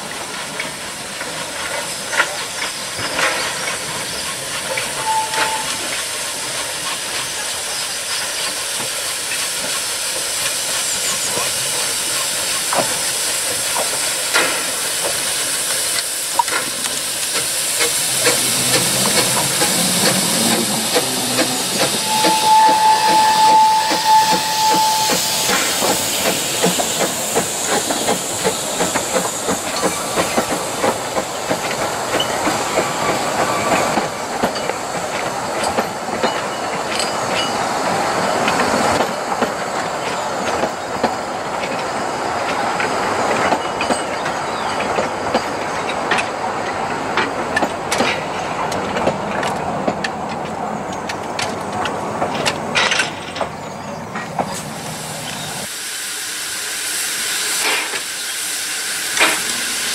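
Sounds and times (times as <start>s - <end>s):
steam hissing: 0.0s - 49.0s, 53.6s - 59.9s
steam locomotive exhaust beats: 0.0s - 53.5s, 54.1s - 59.9s
steady high whistle tone: 5.0s - 5.9s, 20.4s - 27.0s.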